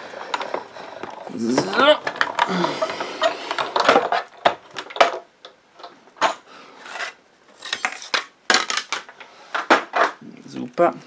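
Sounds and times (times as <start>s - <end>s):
plastic plates scraping: 0.1s - 5.2s, 6.3s - 10.2s.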